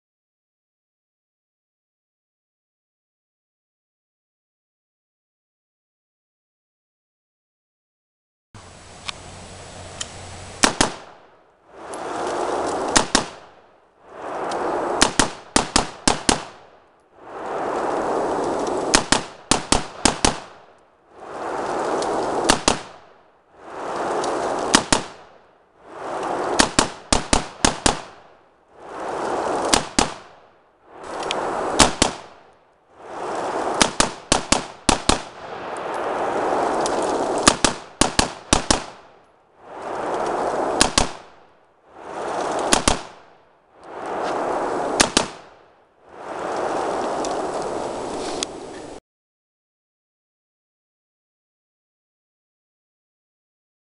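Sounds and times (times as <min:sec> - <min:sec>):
gunshot volleys: 0:10.6 - 0:11.2.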